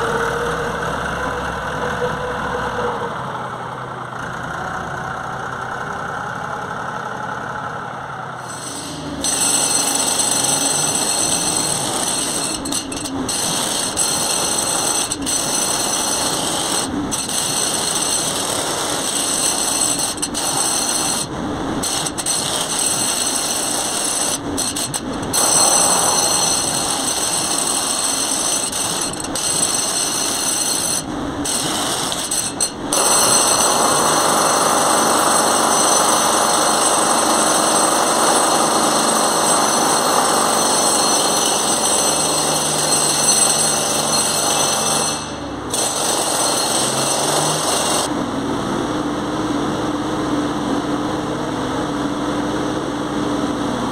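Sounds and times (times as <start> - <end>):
excavator engine and hydraulics: 0.0 - 40.5.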